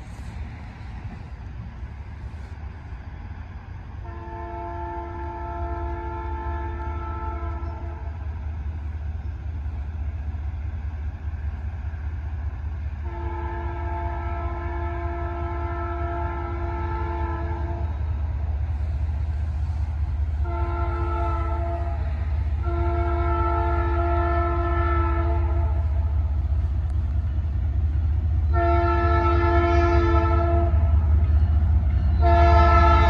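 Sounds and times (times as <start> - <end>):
low engine rumble: 0.0 - 33.0
locomotive air horn blasts: 4.0 - 8.1, 13.0 - 18.2, 19.6 - 26.1, 28.4 - 33.0.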